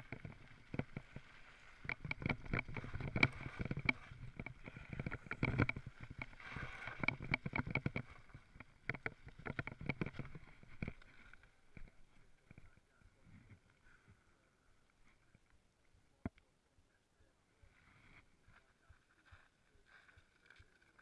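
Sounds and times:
mountain bike rattling on gravel: 0.0 - 10.6.

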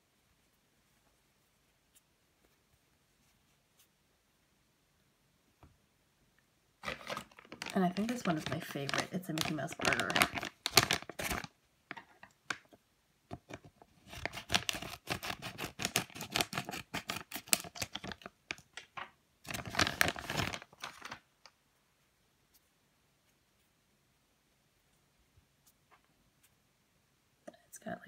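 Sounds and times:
plastic bag crinkling: 6.8 - 12.7, 13.5 - 21.3.

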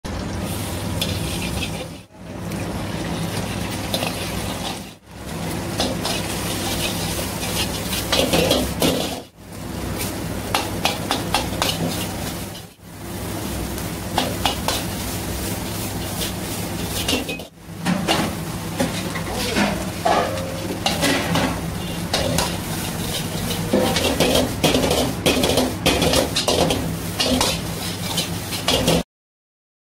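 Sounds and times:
food sizzling: 0.0 - 29.0
metal ladle scraping a wok: 1.0 - 2.1, 3.8 - 5.0, 5.8 - 9.3, 10.0 - 12.8, 18.9 - 29.0.

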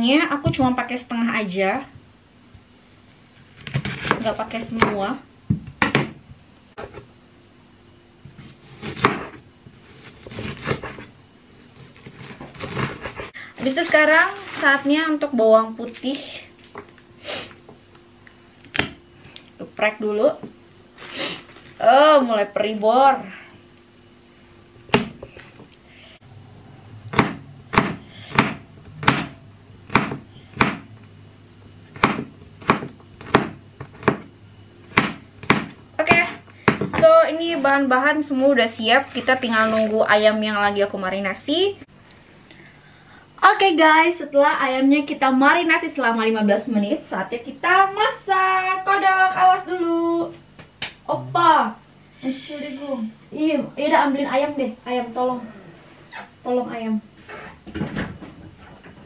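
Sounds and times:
knife cutting onion on wooden board: 3.4 - 5.0, 8.2 - 11.1, 11.7 - 13.4, 27.1 - 30.9, 31.9 - 34.3, 34.9 - 36.9.

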